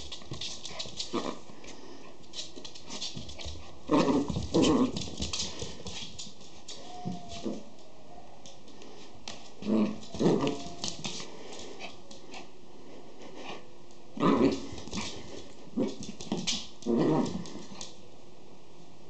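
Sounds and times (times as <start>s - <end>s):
dogs growling: 14.2s - 16.0s, 16.8s - 17.7s.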